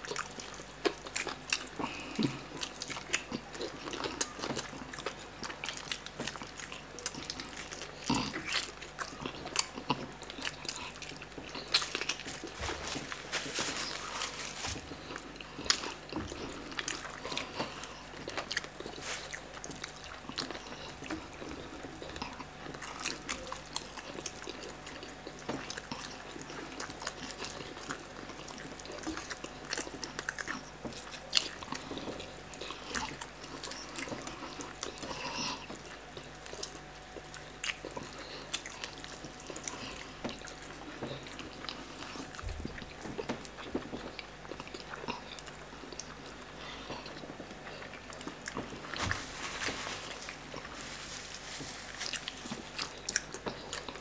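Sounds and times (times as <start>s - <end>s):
people chewing: 0.0s - 54.0s.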